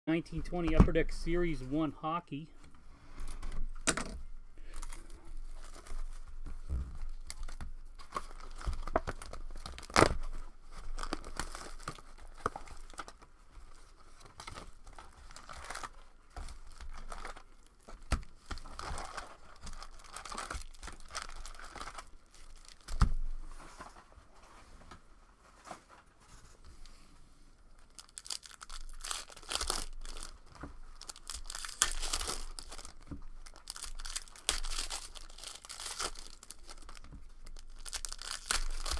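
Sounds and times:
foil wrappers crinkling and tearing: 0:04.6 - 0:24.0, 0:27.8 - 0:38.9.

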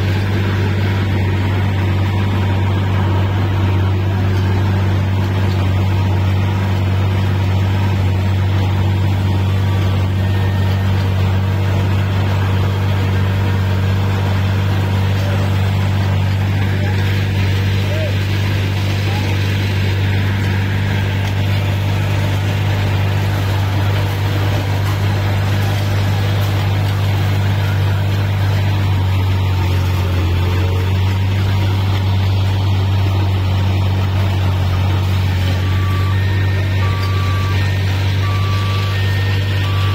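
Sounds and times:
heavy diesel hum: 0:00.0 - 0:39.9
road surface being milled: 0:00.0 - 0:39.9
two-tone reversing alarm beeping: 0:34.8 - 0:39.9.

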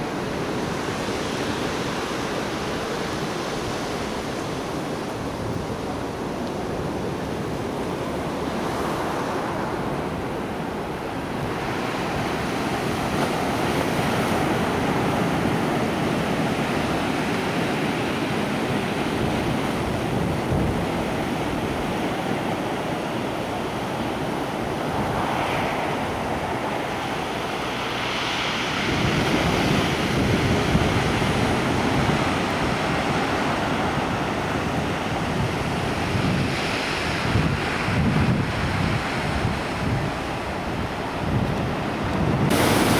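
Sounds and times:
wind buffeting microphone: 0:00.0 - 0:42.9
surf breaking on rocks: 0:42.4 - 0:42.9.

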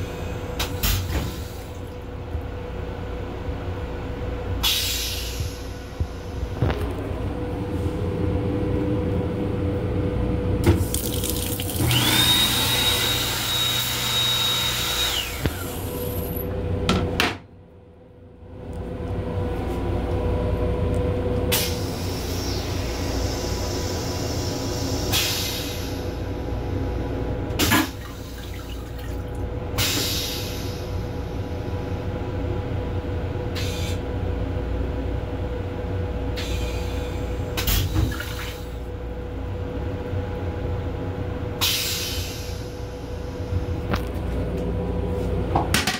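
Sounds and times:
railcar rumble: 0:00.0 - 0:10.7, 0:18.2 - 0:37.9, 0:38.5 - 0:45.9
hand dryer rushing with high whine: 0:10.8 - 0:17.0.

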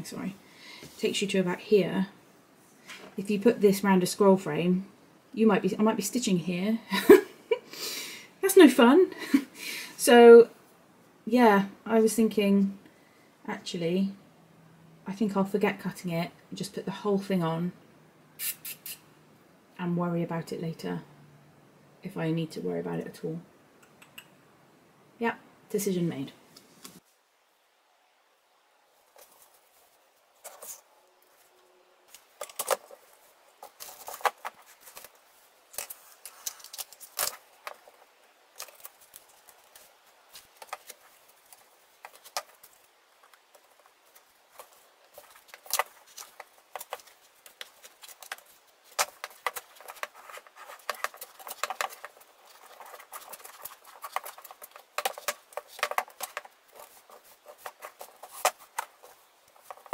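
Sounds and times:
fabric rustling: 0:28.9 - 0:59.9.

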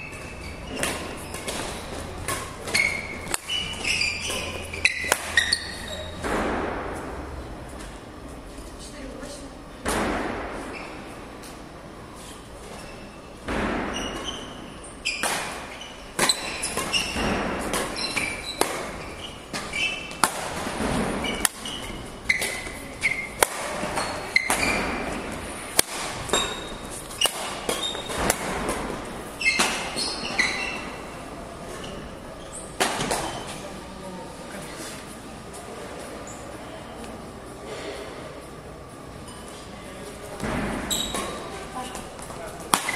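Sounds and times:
shoes squeaking on court floor: 0:00.0 - 0:06.2, 0:10.6 - 0:11.6, 0:12.2 - 0:33.8, 0:40.7 - 0:42.9
racket hitting shuttlecock: 0:00.7 - 0:06.9, 0:15.1 - 0:30.6.

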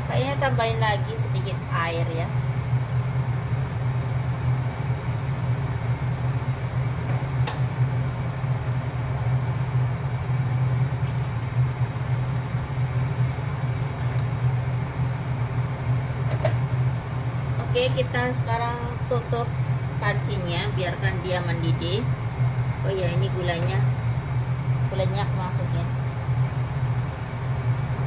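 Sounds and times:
kitchen fan humming: 0:00.0 - 0:28.0.

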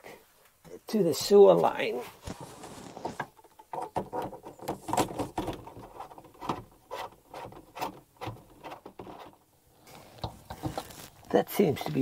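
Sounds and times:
plastic rubbing: 0:02.0 - 0:12.0.

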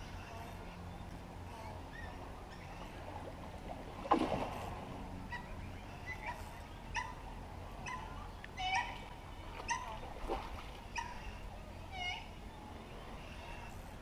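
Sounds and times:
fish splashing at the surface: 0:04.0 - 0:04.8.

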